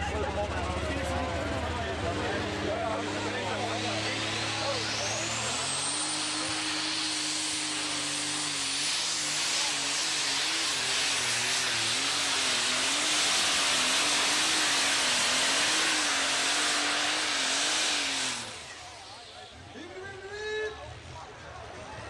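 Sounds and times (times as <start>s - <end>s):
diesel engine at full power: 0.0s - 22.0s
high turbo whistle: 3.6s - 19.7s.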